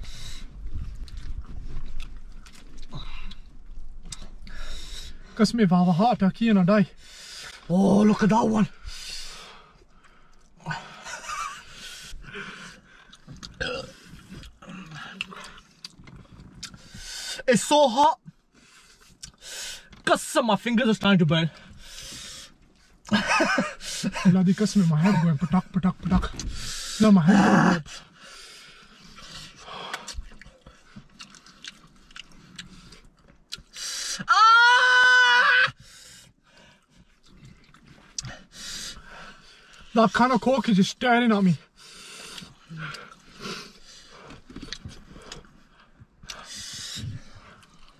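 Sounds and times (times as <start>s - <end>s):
chewing and mouth sounds: 0.7s - 4.5s, 12.6s - 17.0s, 18.3s - 19.4s, 28.8s - 33.8s, 36.7s - 38.5s, 42.2s - 47.9s
man grunting: 27.0s - 27.9s
person crying out: 27.2s - 27.8s, 34.2s - 35.7s.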